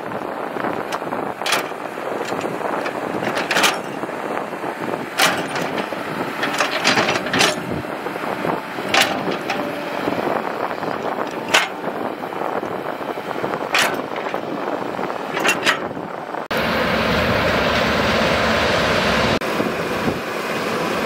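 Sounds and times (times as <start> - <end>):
excavator engine and hydraulics: 0.0 - 21.0
metallic knocks from bucket: 11.2 - 11.8.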